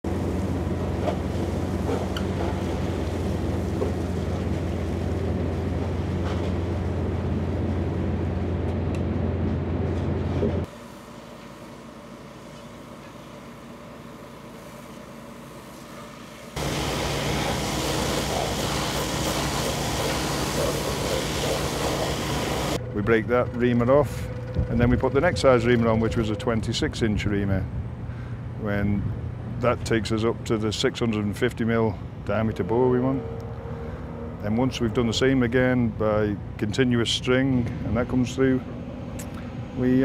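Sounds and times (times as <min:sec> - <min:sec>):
drilling rig drone: 0:00.1 - 0:10.8, 0:16.6 - 0:40.0
drilling mud spraying hiss: 0:16.6 - 0:22.8.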